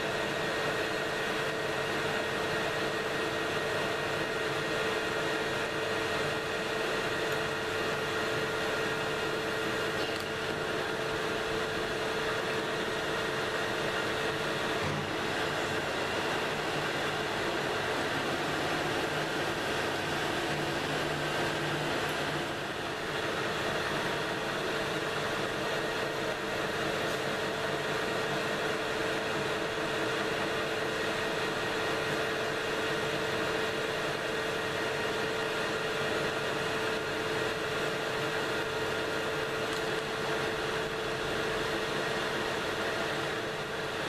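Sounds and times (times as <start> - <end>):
metal lathe humming: 0.0 - 44.0.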